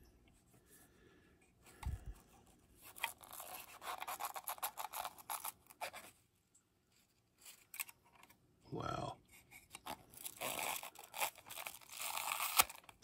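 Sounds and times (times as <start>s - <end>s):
metal tool scraping plastic: 2.8s - 6.1s.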